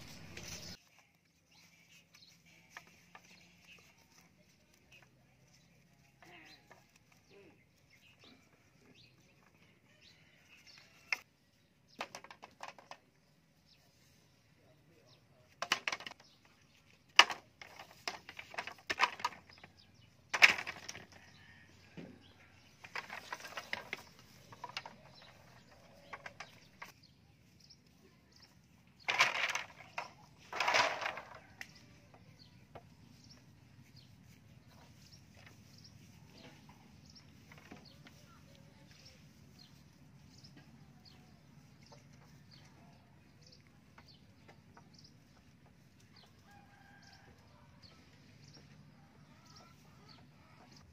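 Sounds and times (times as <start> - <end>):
rustling and scraping: 0.0 - 50.9
bamboo poles knocking: 12.0 - 13.1, 15.5 - 27.0, 29.0 - 33.5, 34.2 - 38.5.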